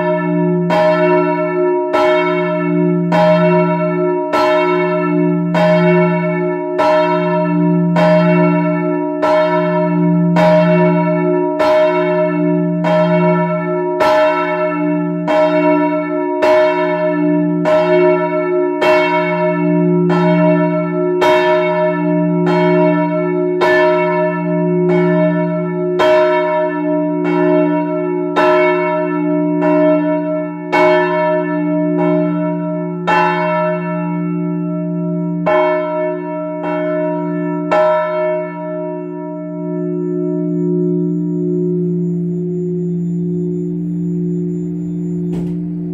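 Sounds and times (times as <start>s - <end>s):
church bell ringing: 0.0s - 45.9s
steady hum: 42.8s - 45.9s.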